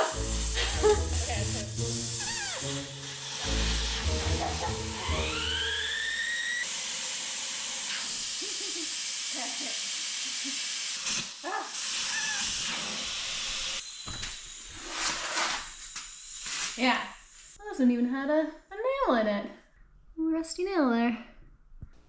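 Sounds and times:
air hissing out of tyre: 0.0 - 13.8
rising whistle: 5.0 - 6.7.

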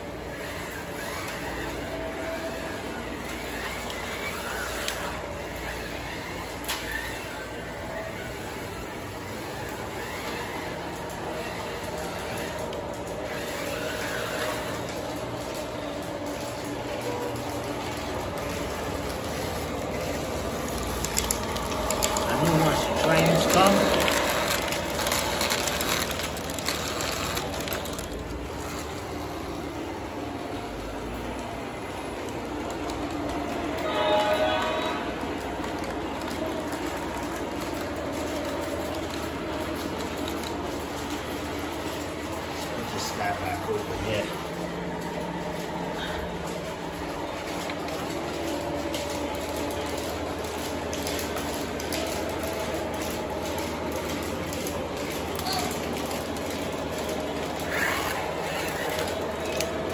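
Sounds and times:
toy trains rumbling and whirring: 0.0 - 59.9
model train wheels clicking: 0.3 - 28.5.

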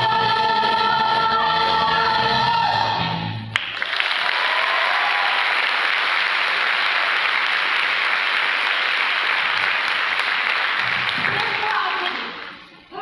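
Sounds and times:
choir singing: 0.0 - 3.1
audience applauding: 3.5 - 12.8.

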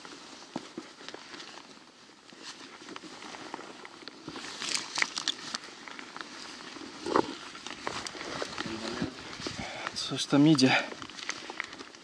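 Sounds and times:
boots stepping on rocky trail: 0.0 - 12.0
gravel scraping underfoot: 0.0 - 12.0.

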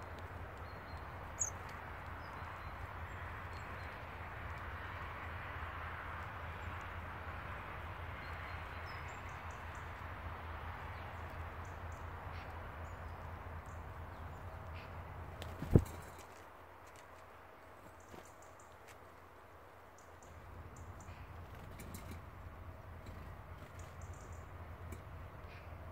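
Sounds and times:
outdoor low hum: 0.0 - 25.9
faint bird chirps: 0.6 - 1.6.

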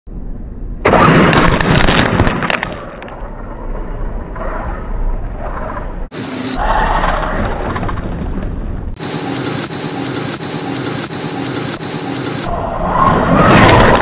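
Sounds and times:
sharp clicks: 9.0 - 12.5.

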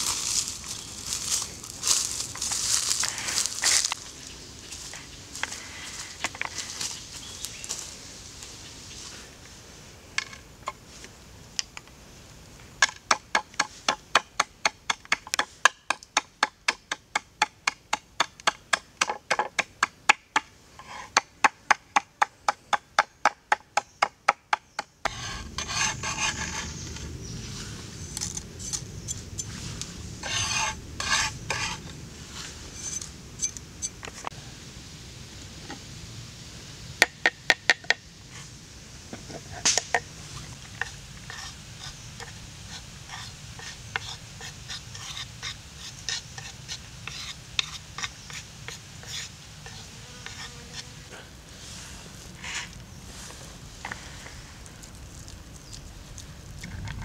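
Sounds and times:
wooden spoon scraping and stirring: 25.1 - 27.2.

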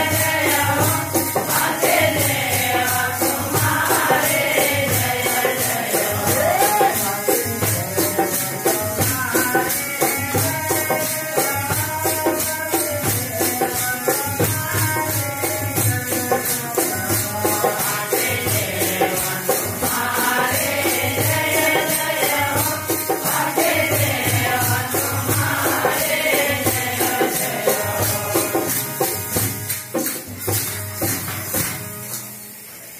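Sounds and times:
men singing: 0.0 - 29.4
drum beat: 0.0 - 32.1
jingling metal hand percussion: 0.0 - 32.9.

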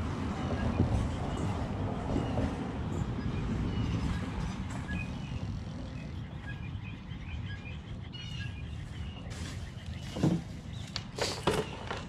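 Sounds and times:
steady low rumble: 0.0 - 9.3
small birds chirping: 0.6 - 12.0.

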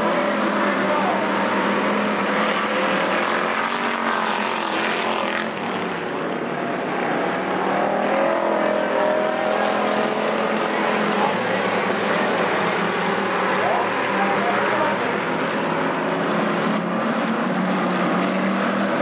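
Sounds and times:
race car engines accelerating: 0.0 - 19.0.

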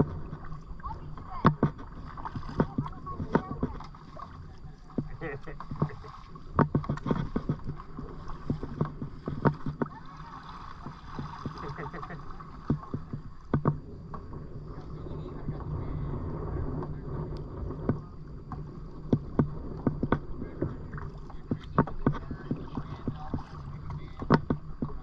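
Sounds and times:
paddle strokes in water: 0.0 - 25.0
steady low rumble: 0.0 - 25.0.

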